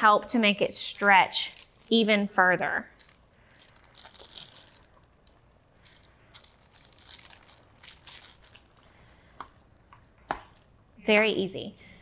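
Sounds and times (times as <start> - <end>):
plastic bag crinkling: 0.8 - 2.2, 2.8 - 9.0.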